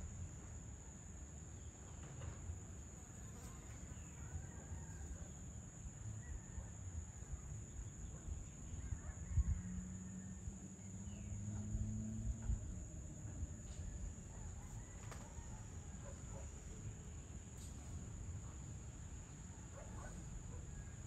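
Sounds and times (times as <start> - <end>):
insects trilling: 0.0 - 21.0
low outdoor rumble: 5.2 - 21.0.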